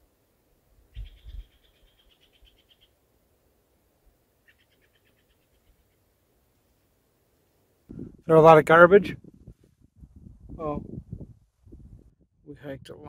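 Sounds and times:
low thumps: 7.9 - 8.3, 9.1 - 12.3.

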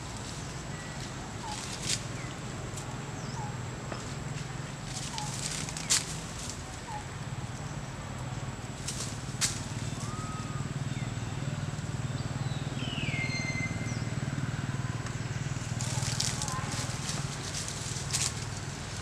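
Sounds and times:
leaves rustling: 0.0 - 2.9, 4.0 - 7.0, 8.7 - 10.4, 15.3 - 19.0
short whistled calls: 12.8 - 14.1.

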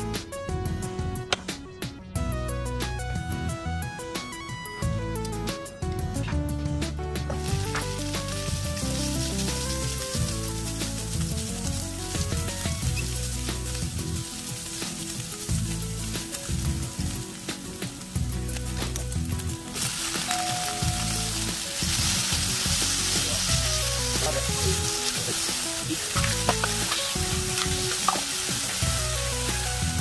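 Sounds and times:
soft background music: 0.0 - 30.0
food sizzling in a frying pan: 7.4 - 30.0.

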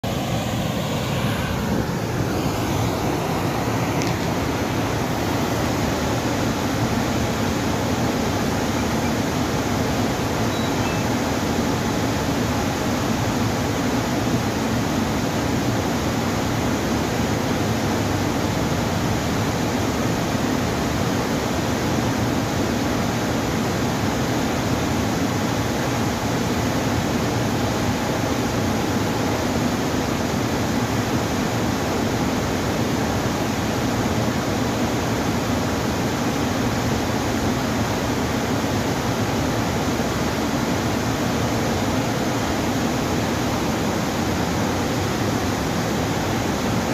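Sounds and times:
water rushing over a weir: 0.0 - 46.9.

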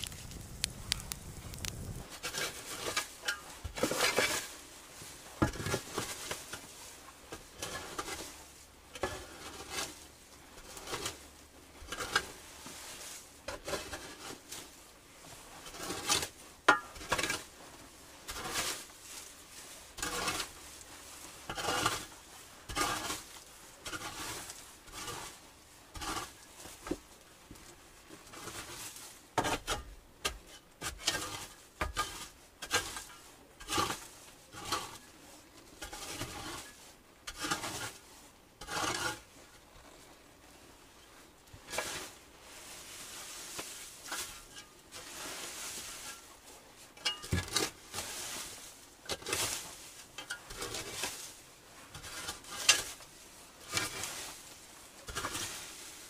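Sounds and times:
objects being handled: 0.0 - 4.4.

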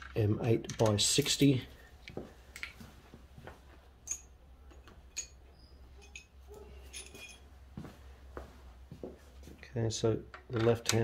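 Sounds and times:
small metal hardware clicking: 4.0 - 4.3.

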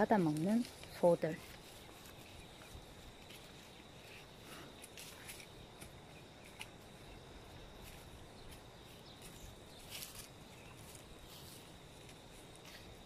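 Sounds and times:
high thin insect trill: 0.0 - 13.0.

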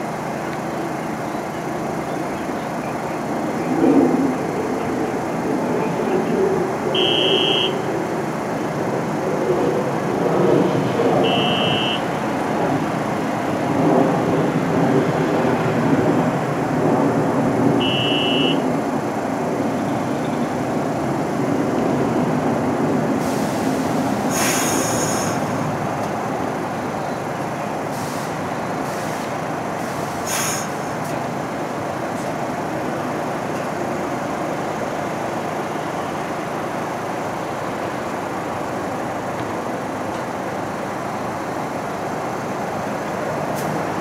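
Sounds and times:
subway train wheels rumbling: 0.0 - 44.0
short high tones: 11.2 - 12.0
brief high hiss: 24.3 - 25.4, 29.9 - 30.8.

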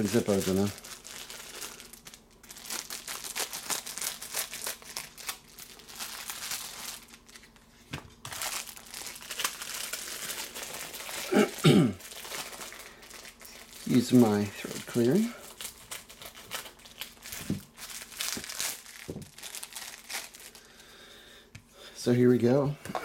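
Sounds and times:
plastic wrap crinkling: 0.0 - 20.8
person clearing throat: 11.2 - 12.0.

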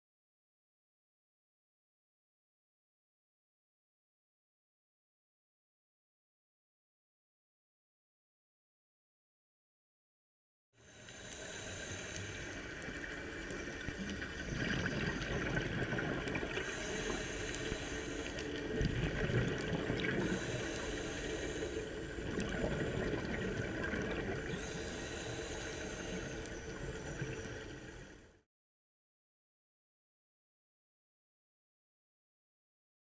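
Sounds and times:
scuba diver breathing underwater: 10.8 - 28.3.

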